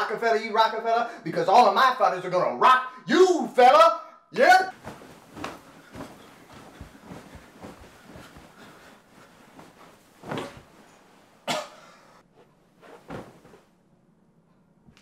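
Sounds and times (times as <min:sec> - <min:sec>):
bedding rustling: 0:04.7 - 0:13.9.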